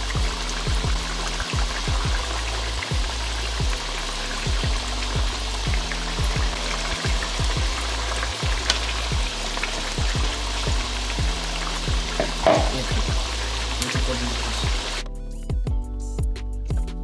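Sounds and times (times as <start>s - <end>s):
food frying in a pan: 0.0s - 15.0s
music with deep bass hits: 0.0s - 17.0s.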